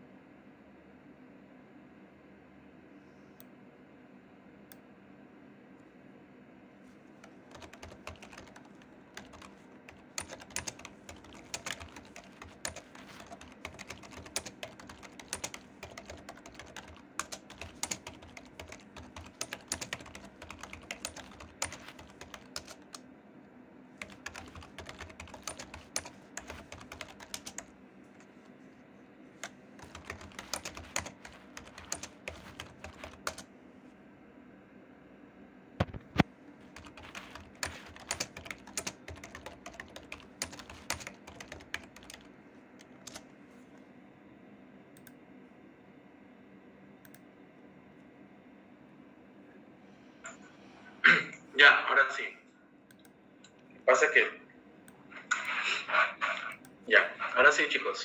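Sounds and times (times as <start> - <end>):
typing on a keyboard: 7.2 - 23.0, 24.0 - 28.3, 29.4 - 33.5, 35.8 - 43.2.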